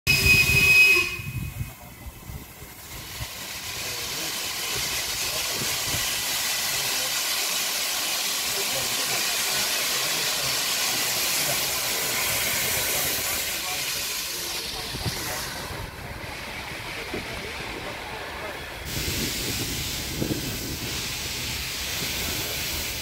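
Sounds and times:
short high whistle: 0:00.1 - 0:01.7
steam locomotive hissing: 0:00.1 - 0:23.0.

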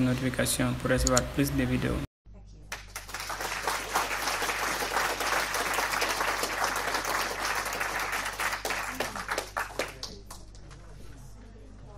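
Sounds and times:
crowd applause: 0:02.7 - 0:10.6.

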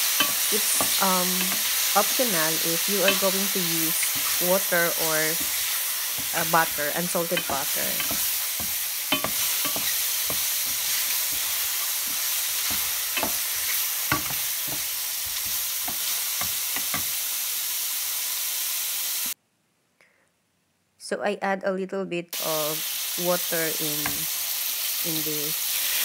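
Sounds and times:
mushrooms sizzling in oil: 0:00.0 - 0:19.4, 0:22.4 - 0:26.0
wooden spoon knocking on pan: 0:05.2 - 0:17.1.

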